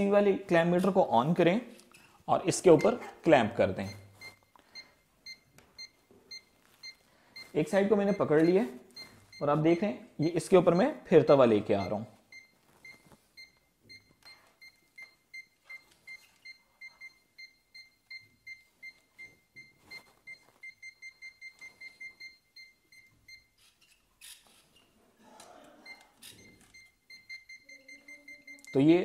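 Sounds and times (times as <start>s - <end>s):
voltage detector beeping: 2.4s - 24.9s, 25.8s - 29.0s.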